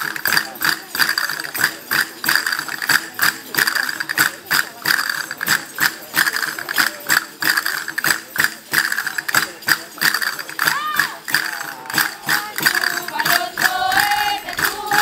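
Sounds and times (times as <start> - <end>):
tambourine jingles: 0.0 - 15.0
castanets clacking: 11.3 - 15.0.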